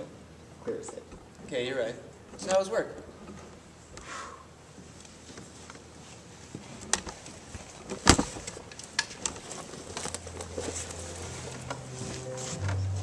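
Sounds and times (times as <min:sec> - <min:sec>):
low steady music tone: 0:10.2 - 0:13.0.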